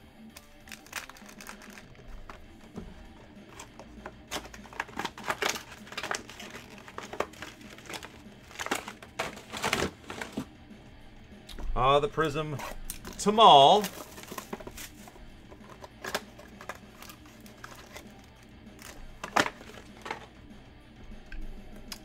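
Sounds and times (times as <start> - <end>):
packs being torn open: 0.3 - 10.5, 12.6 - 15.0, 15.6 - 20.3
foil wrappers crinkling: 0.4 - 10.5, 12.9 - 20.2.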